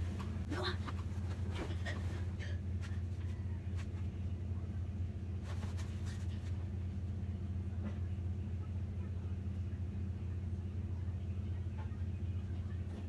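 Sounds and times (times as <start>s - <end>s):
low hum: 0.0s - 13.0s
pages and bedding rustling: 5.4s - 6.6s.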